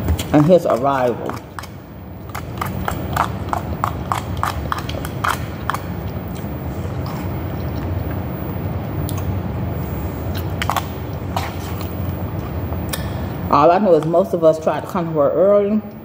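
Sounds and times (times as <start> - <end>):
low room rumble: 0.0 - 16.0
chewing: 0.1 - 8.3, 9.0 - 13.0.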